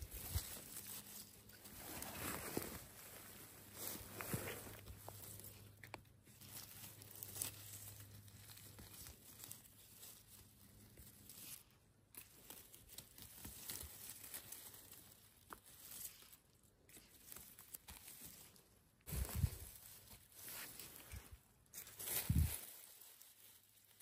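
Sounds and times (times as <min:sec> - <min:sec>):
rustling through undergrowth: 0:00.0 - 0:24.0
twigs snapping: 0:12.1 - 0:21.0.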